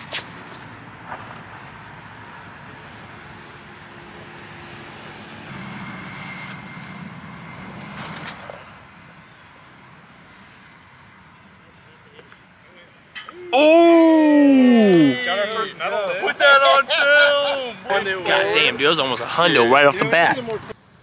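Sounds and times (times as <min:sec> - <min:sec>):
vehicle passing: 0:00.0 - 0:13.1, 0:14.6 - 0:20.8
outdoor noise hiss: 0:00.0 - 0:21.0.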